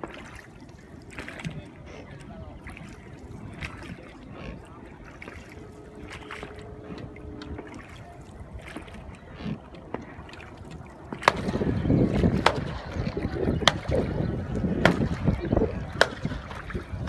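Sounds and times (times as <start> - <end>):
water moving: 0.0 - 17.0
oars knocking in oarlocks: 8.6 - 16.8.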